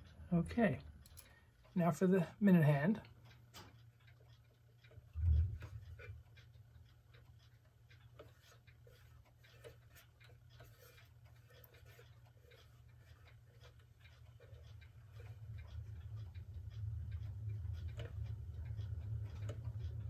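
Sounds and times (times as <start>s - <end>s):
steady low hum: 0.0s - 20.0s
small metal clicks and taps: 3.0s - 6.5s.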